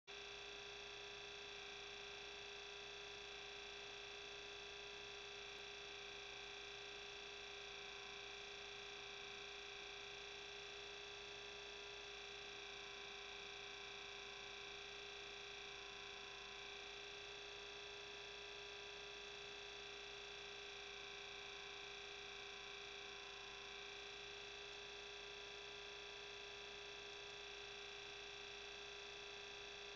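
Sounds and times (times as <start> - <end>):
faint electronic hum and whine: 0.1 - 29.9.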